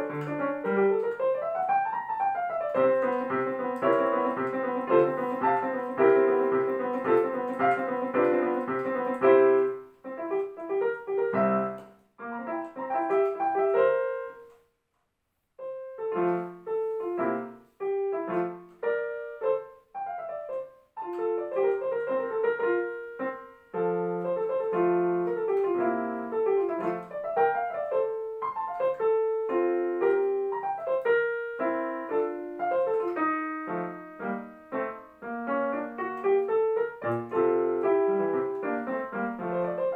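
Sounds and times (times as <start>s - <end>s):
digital piano classical music: 0.0s - 14.8s, 15.5s - 39.9s.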